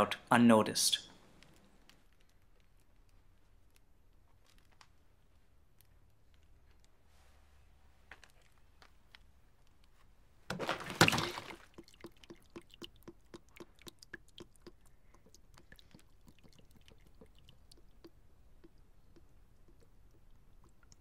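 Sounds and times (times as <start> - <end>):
plastic bottle tipping on floor: 10.5 - 11.8
water splashing out: 10.5 - 14.8
water dripping: 10.5 - 21.0.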